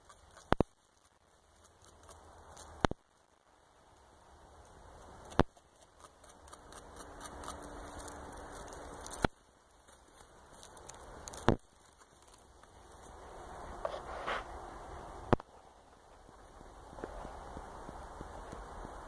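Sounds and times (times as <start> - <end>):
beaver gnawing wood: 0.0 - 14.5.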